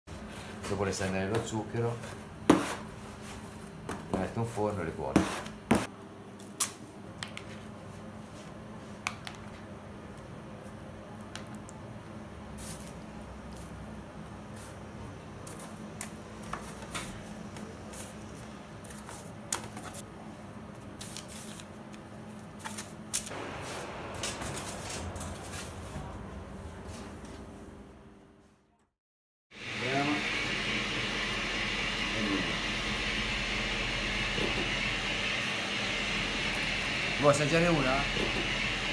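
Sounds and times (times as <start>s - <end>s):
steady machine hum: 23.2s - 28.4s, 29.6s - 38.9s
rushing noise: 23.3s - 27.2s.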